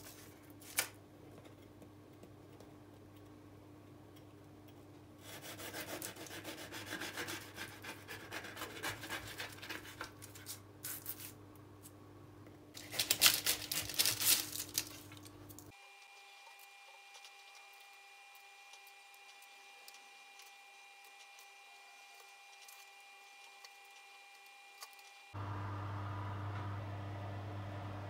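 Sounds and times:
serrated knife sawing biscotti: 5.2 - 10.0.

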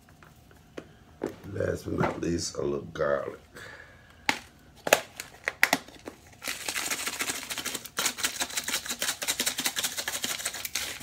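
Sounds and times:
seasoning shaker rattling: 6.4 - 11.0.

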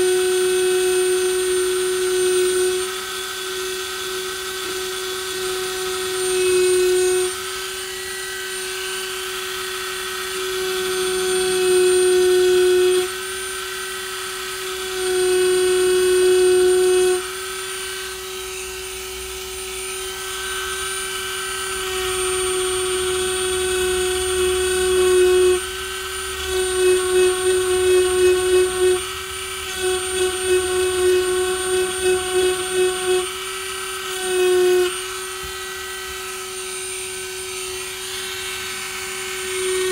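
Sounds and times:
rotary tool whining on wood: 0.0 - 39.9.

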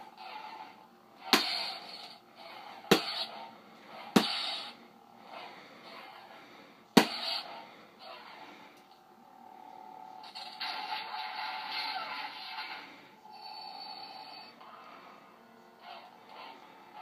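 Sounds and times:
toy lightsaber hum: 10.2 - 14.9.

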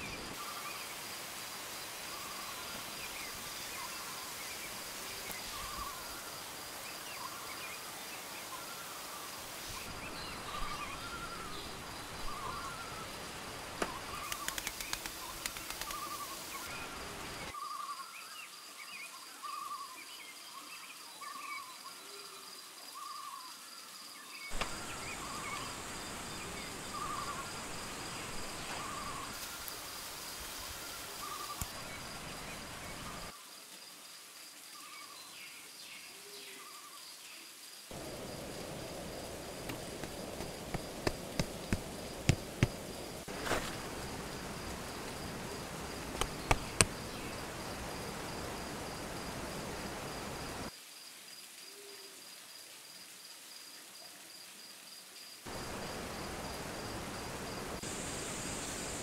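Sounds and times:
high trill of forest insects: 0.0 - 59.0.

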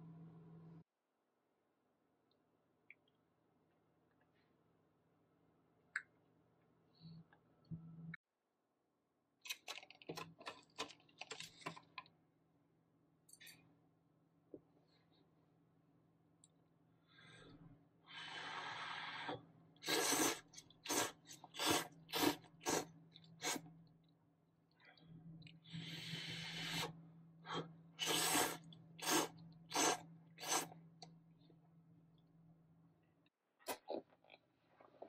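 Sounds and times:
noodles being slurped: 19.8 - 23.6, 28.0 - 30.8.

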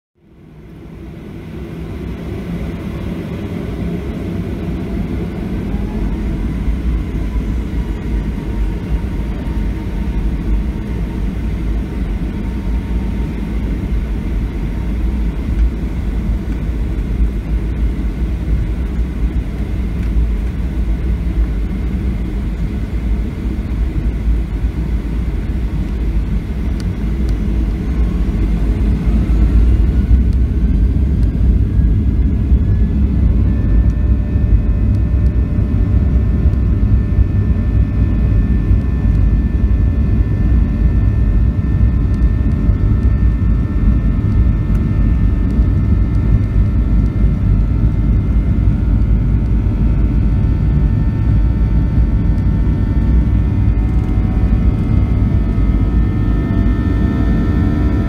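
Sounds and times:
rising engine whine: 0.2 - 58.0
jet engines rumbling: 0.4 - 58.0.

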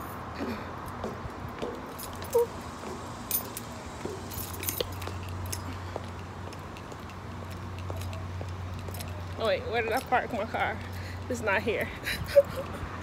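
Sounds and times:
keys jingling: 1.9 - 2.5, 3.3 - 10.1.

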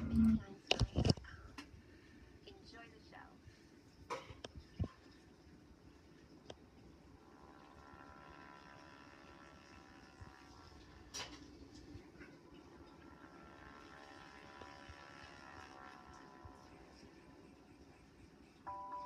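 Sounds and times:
faint television tones: 2.4 - 3.6.

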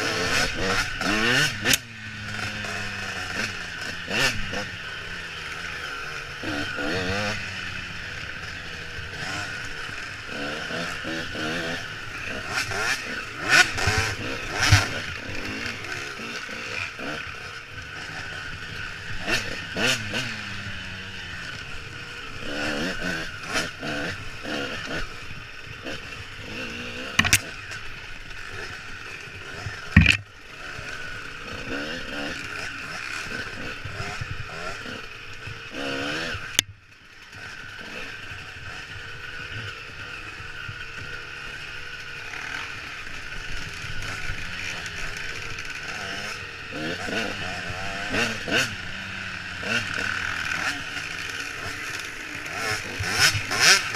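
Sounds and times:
dirt bike engine revving: 0.0 - 53.9
sharp knocks and clatters: 27.2 - 27.4, 30.0 - 30.2.

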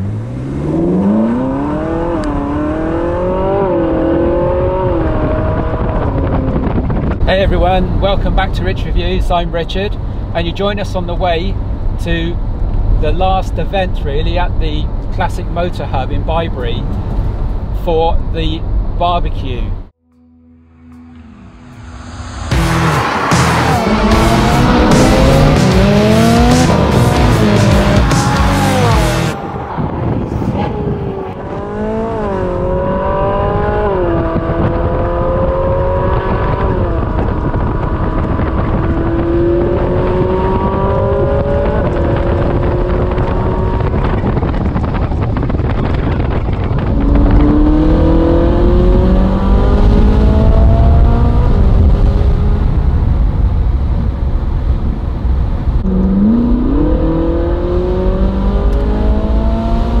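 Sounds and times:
sports car engine accelerating: 0.0 - 9.4, 20.2 - 60.0
heavy low rumble: 0.0 - 60.0.

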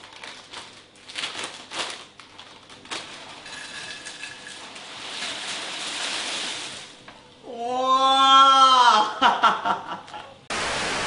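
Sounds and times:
plastic bag crinkling: 0.0 - 6.8
chips pouring onto a plate: 2.8 - 6.9.

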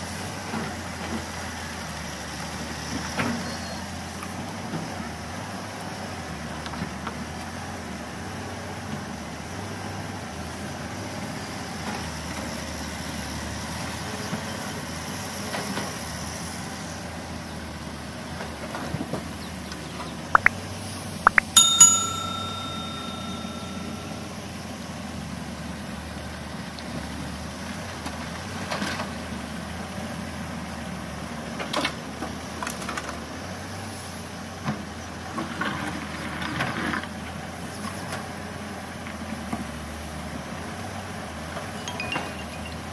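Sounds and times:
metallic bell-like ring: 21.3 - 24.6, 41.8 - 42.9.

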